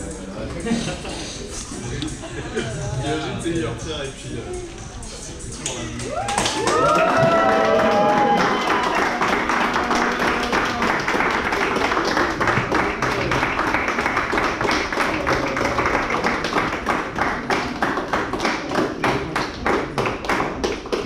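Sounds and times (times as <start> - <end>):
group rhythmic clapping: 5.4 - 21.0.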